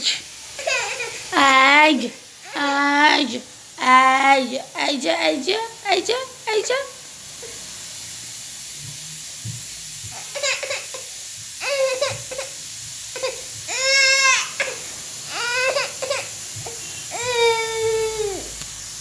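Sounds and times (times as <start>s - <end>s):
baby fussing and crying: 0.0s - 1.4s, 10.2s - 18.6s.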